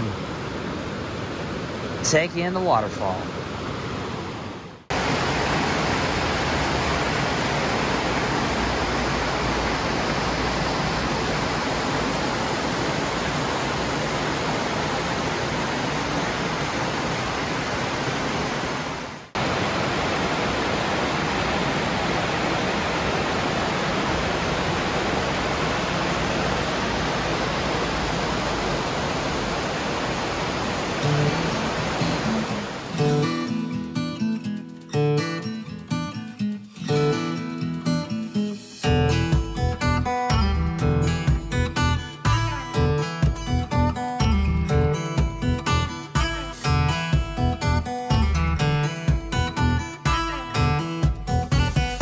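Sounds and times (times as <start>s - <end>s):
water rushing over rocks: 0.0s - 33.5s.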